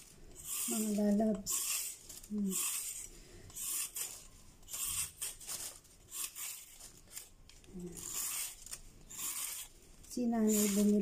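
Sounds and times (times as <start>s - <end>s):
carrot peeling scrapes: 0.4s - 11.0s.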